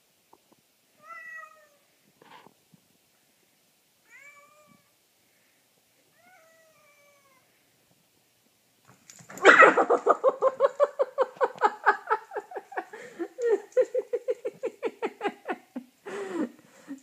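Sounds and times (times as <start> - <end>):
cat meowing: 1.0 - 1.8, 4.1 - 4.9, 6.1 - 7.5.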